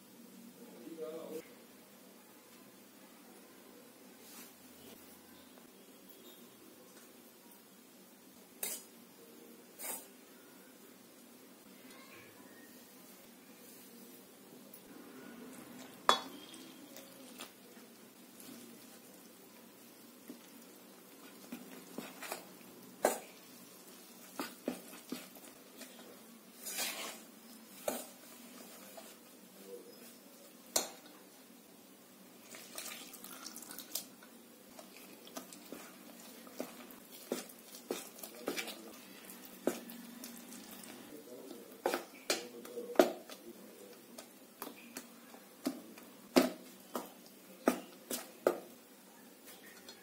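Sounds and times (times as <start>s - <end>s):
wet batter mixing: 11.7s - 50.0s
spoon clinking on steel bowl: 16.1s - 16.5s.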